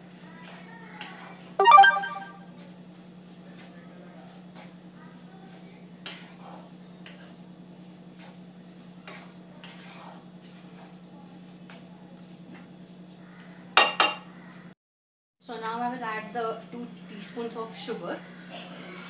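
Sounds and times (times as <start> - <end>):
spatula scraping a pan: 6.0 - 7.4, 8.1 - 11.0.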